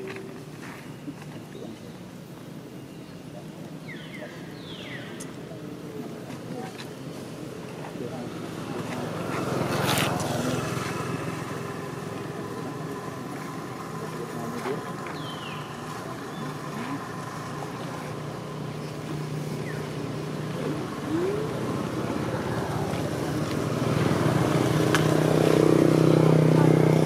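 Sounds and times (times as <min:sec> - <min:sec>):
motor engine running: 0:08.1 - 0:27.0.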